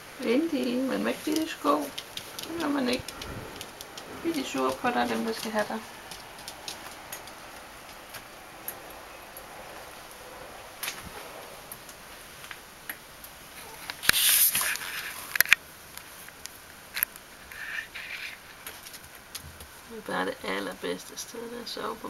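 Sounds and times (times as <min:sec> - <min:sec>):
rustle: 0:00.0 - 0:22.0
dog claws ticking on floor: 0:01.3 - 0:09.5
sharp clicks: 0:01.3 - 0:09.5.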